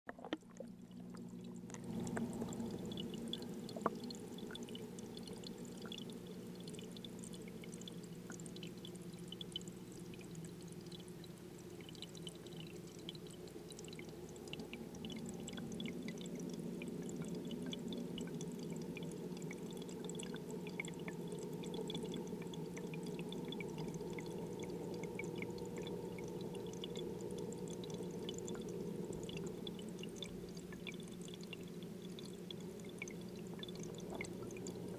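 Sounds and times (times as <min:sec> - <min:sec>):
low hum of aquarium water: 0:00.1 - 0:34.9.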